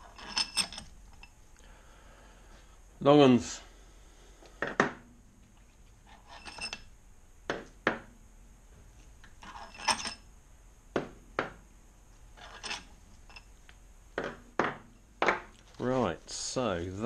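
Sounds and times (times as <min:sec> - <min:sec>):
metal tools clinking on wooden bench: 0:00.0 - 0:01.4, 0:06.1 - 0:06.9, 0:09.4 - 0:10.3, 0:12.4 - 0:13.6.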